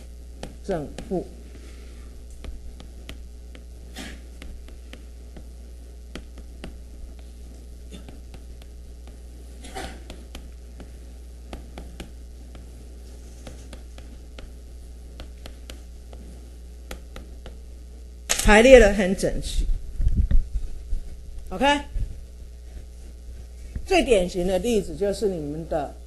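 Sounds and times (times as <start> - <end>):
low mains hum: 0.0 - 26.0
writing taps on a board: 4.4 - 5.5, 6.1 - 6.8, 10.0 - 12.7, 13.4 - 14.6, 15.2 - 16.3, 16.9 - 17.6.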